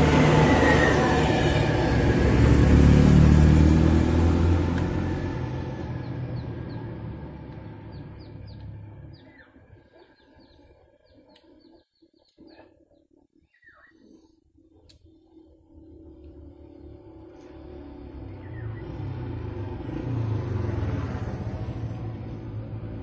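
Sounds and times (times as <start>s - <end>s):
vehicle engine passing by: 0.0s - 9.9s, 16.4s - 23.0s
small birds chirping: 5.8s - 17.6s, 18.2s - 20.8s.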